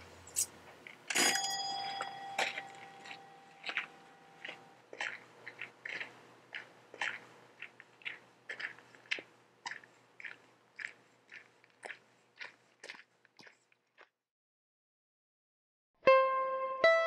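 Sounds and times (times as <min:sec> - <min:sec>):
footsteps on gravel: 0:01.1 - 0:14.1.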